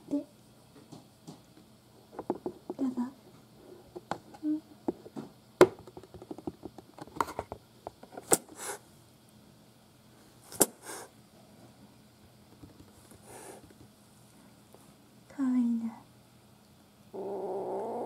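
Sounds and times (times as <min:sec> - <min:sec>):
kitten hissing and spitting: 0:10.6 - 0:11.1
small clicks and taps: 0:12.5 - 0:13.9.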